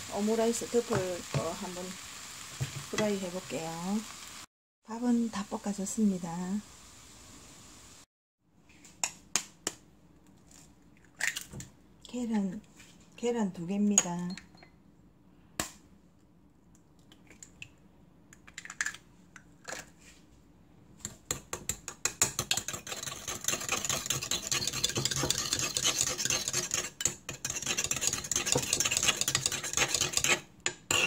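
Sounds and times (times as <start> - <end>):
whisk clicking against ceramic bowl: 21.3 - 30.4.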